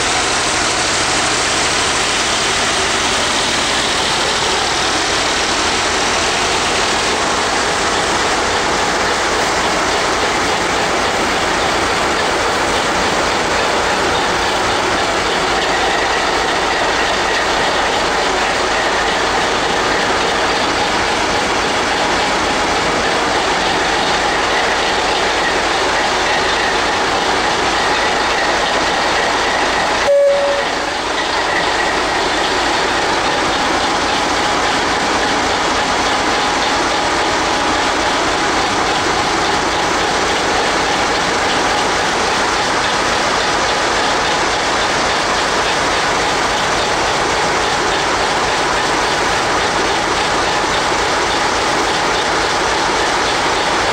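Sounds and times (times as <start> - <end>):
diesel locomotive running: 0.0 - 53.9
brief high tone: 30.0 - 31.0.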